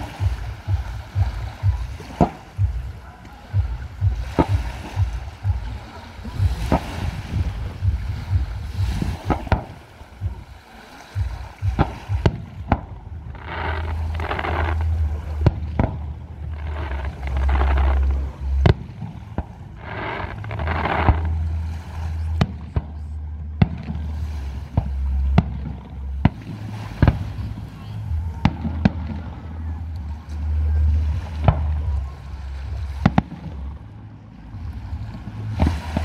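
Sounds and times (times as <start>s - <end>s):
low rumble: 0.0s - 36.0s
fireworks bursting: 6.4s - 10.4s, 11.2s - 21.5s.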